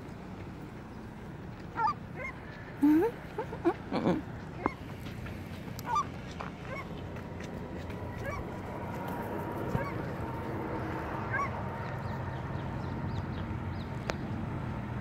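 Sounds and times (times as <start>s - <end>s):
birds calling: 1.7s - 7.0s, 8.1s - 8.5s, 9.7s - 14.4s.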